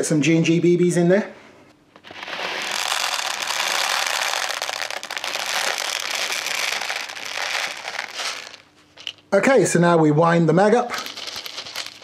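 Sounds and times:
plastic pellets pouring into magazine: 2.0 - 9.2, 11.0 - 12.0.

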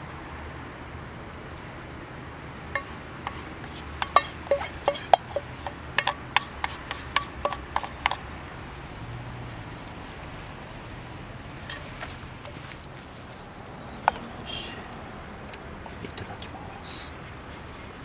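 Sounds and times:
metal spoon clinking on metal: 2.8 - 8.2.

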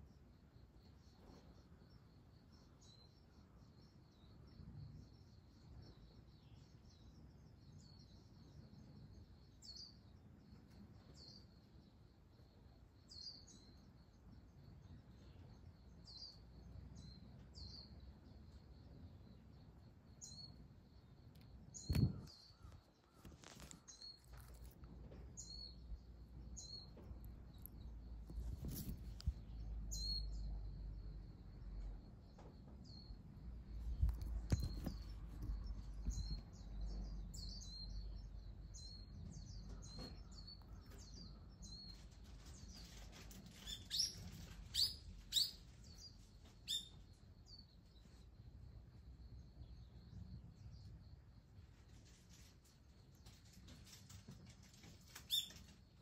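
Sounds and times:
small bird chirping: 0.0 - 56.0
rustling handling noise: 23.1 - 25.1, 28.3 - 29.4.

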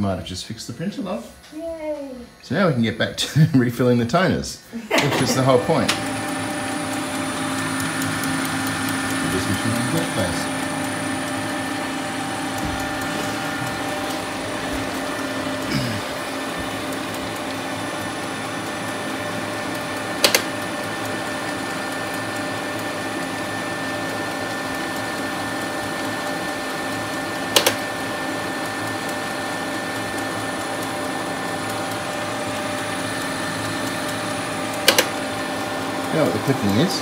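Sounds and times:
printer humming: 0.0 - 37.0
sharp clicks: 20.2 - 20.6, 27.5 - 27.8, 34.7 - 35.2.

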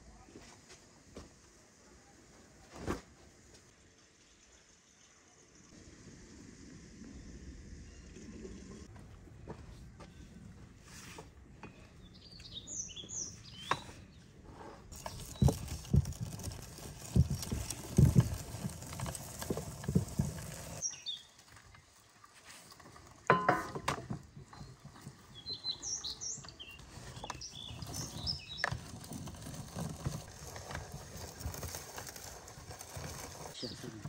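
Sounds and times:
birds chirping: 11.5 - 16.0, 20.7 - 21.4, 24.5 - 29.2, 33.6 - 34.0
hand-cranked nut grinder crunching: 14.9 - 20.8, 26.7 - 34.0.

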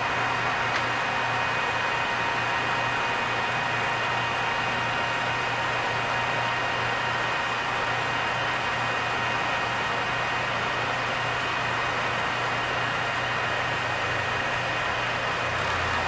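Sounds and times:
lathe humming: 0.0 - 16.0.

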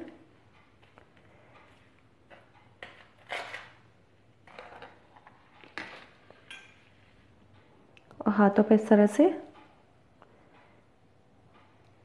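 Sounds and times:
spoon scraping in plastic plate: 2.3 - 7.2.

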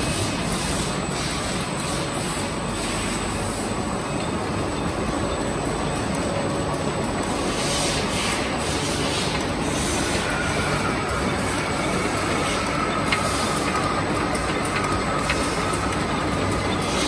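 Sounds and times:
machine mechanical clatter: 0.0 - 17.0.

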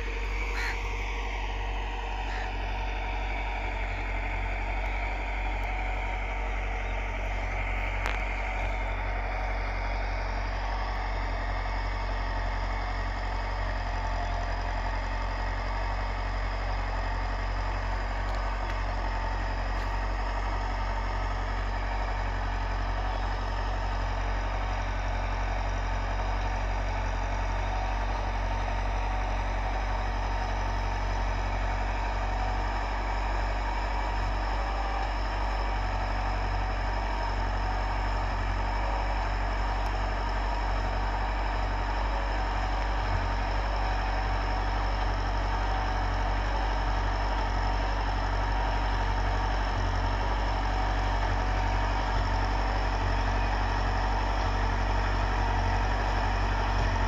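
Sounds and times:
tractor engine under load: 0.0 - 57.0.

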